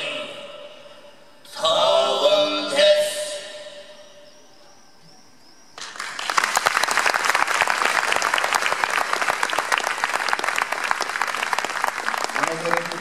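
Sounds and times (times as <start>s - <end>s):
audience applause: 5.8s - 13.0s.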